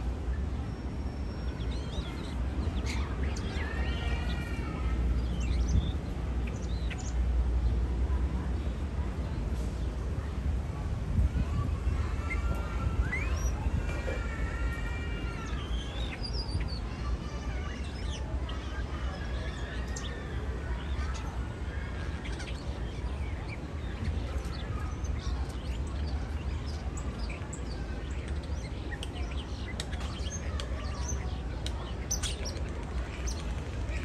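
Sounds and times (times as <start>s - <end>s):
starling singing: 1.1s - 7.2s, 11.9s - 34.0s.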